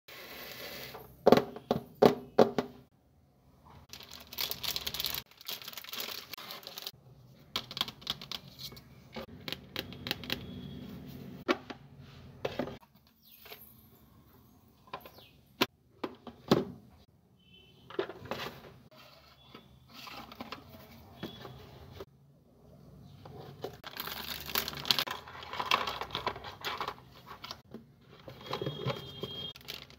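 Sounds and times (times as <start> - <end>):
paper and cardboard rustling: 3.9 - 7.0, 23.3 - 29.9.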